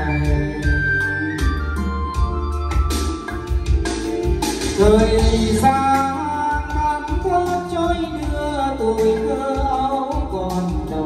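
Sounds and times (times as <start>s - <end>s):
ballad through loudspeaker: 0.0s - 11.0s.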